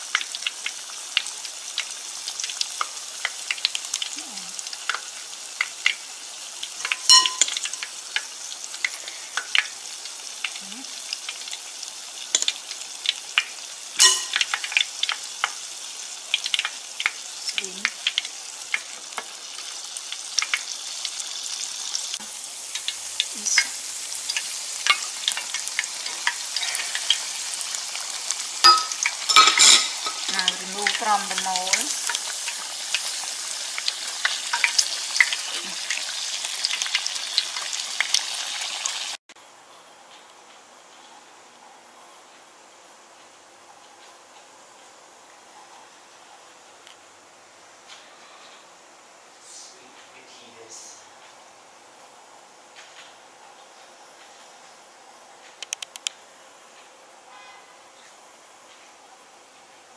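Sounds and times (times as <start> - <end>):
food deep-frying in oil: 0.0 - 39.3.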